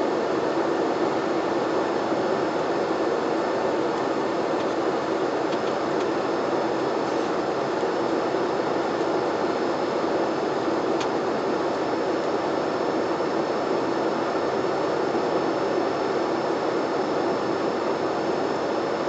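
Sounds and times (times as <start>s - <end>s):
turboprop airliner cockpit drone: 0.0s - 19.0s.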